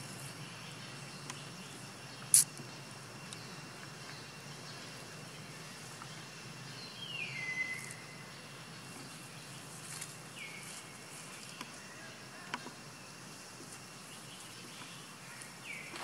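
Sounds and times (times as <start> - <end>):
steady low background noise: 0.0 - 16.0
sharp clicks: 2.3 - 2.6.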